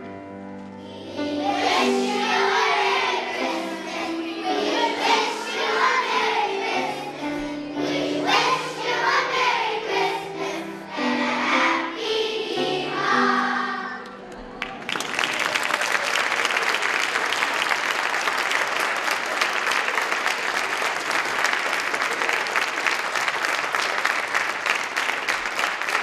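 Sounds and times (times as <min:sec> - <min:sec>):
piano accompaniment: 0:00.0 - 0:14.8
children's choir singing: 0:00.8 - 0:14.6.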